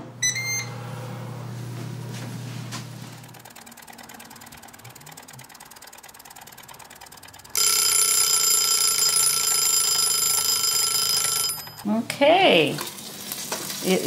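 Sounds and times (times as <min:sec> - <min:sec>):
wind-up kitchen timer ticking: 0:03.2 - 0:12.8
timer bell ringing: 0:03.8 - 0:12.0.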